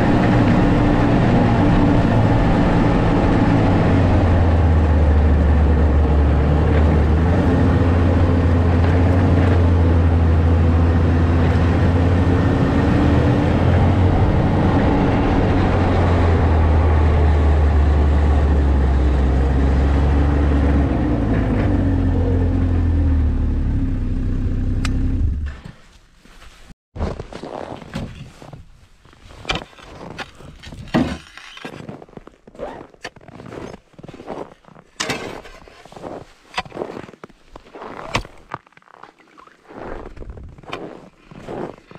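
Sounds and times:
snowmobile engine running: 0.0s - 25.5s.

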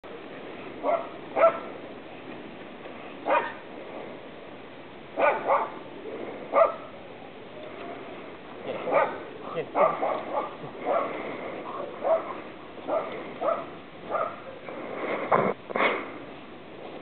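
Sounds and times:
dog barking: 0.8s - 1.7s, 3.2s - 3.6s, 5.2s - 5.8s, 6.5s - 6.9s, 8.7s - 14.6s.

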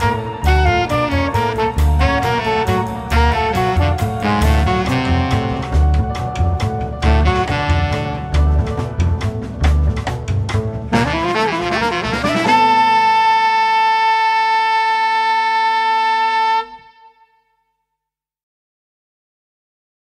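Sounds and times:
soprano saxophone: 0.0s - 6.2s, 7.0s - 8.8s, 10.9s - 17.5s
drum hits: 0.0s - 13.0s
double bass: 0.0s - 16.4s
piano: 0.0s - 16.8s
bass clarinet: 0.0s - 17.4s.

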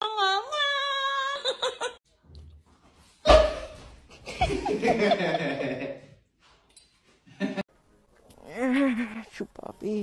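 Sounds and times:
woman laughing: 1.0s - 2.0s.

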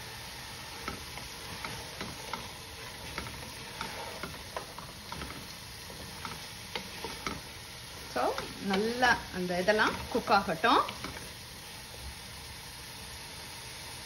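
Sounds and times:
food sizzling: 0.0s - 14.0s
spatula scraping a pot: 0.7s - 11.4s.

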